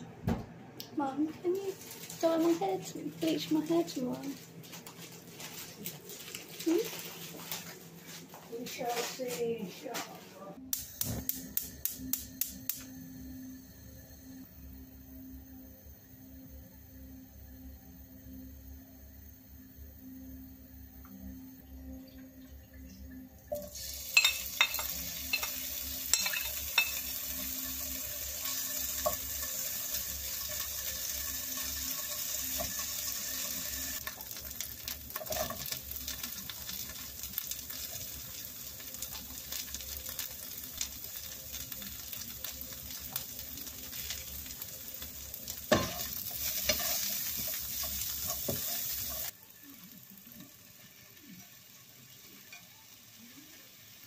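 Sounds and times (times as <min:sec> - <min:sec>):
food sizzling in frying pan: 0:01.6 - 0:08.0, 0:23.5 - 0:54.0.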